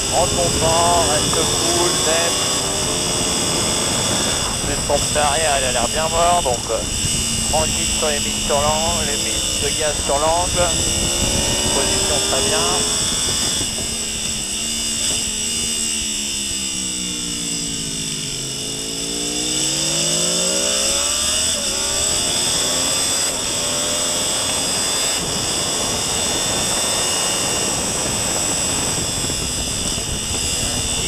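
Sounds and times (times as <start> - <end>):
wind rushing: 0.0 - 14.3
motorbike engine revving: 0.0 - 31.0.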